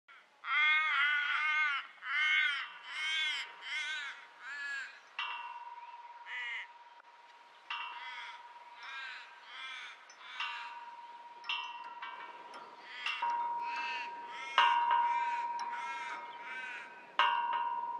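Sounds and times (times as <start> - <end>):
crow cawing: 0.1 - 5.4, 6.2 - 6.8, 7.7 - 11.0, 12.6 - 17.2
metal chains clinking and ringing: 10.0 - 15.8.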